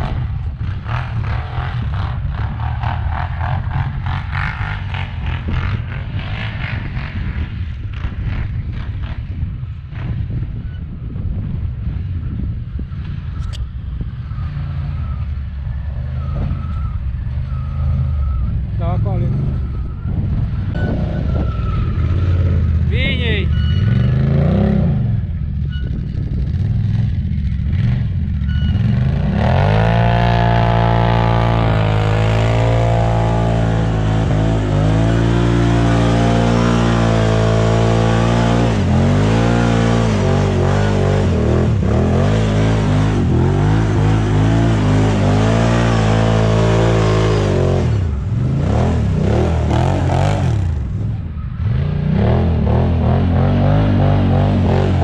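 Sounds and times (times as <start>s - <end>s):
atv engine revving: 0.0s - 10.2s, 15.9s - 55.0s.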